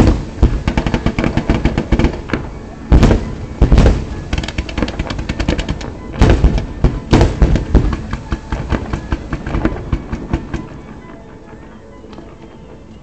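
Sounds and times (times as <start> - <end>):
heavy firework booms: 0.0 - 10.2
fireworks sharp bangs: 0.0 - 10.8.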